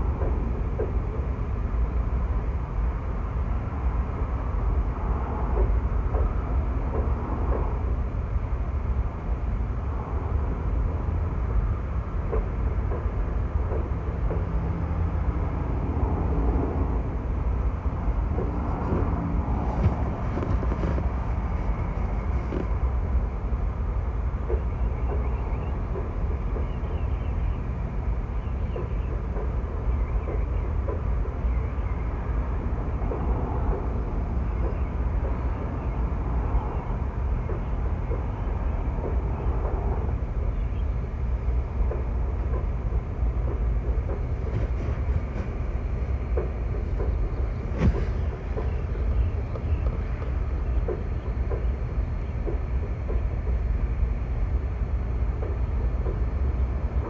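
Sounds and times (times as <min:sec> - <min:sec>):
freight train rumbling: 0:00.0 - 0:57.0.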